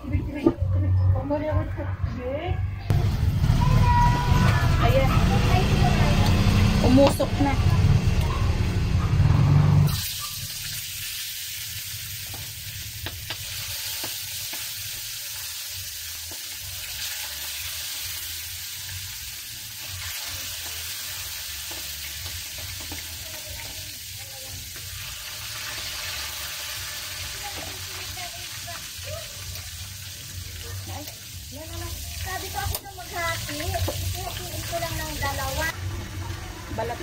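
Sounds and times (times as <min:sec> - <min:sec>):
loud low rumble: 0:01.0 - 0:10.0
fish frying in oil: 0:09.9 - 0:37.0.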